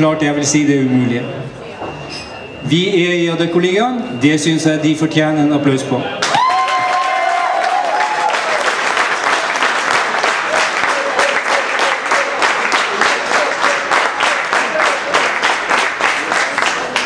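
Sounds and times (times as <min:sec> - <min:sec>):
audience clapping in unison: 0:06.2 - 0:17.0.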